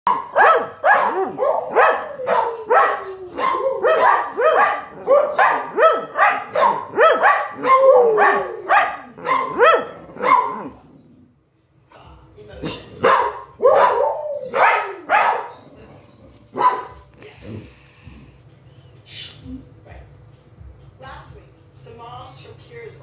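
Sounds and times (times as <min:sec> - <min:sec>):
dogs barking excitedly: 0:00.1 - 0:10.8, 0:13.0 - 0:15.8, 0:16.4 - 0:17.1.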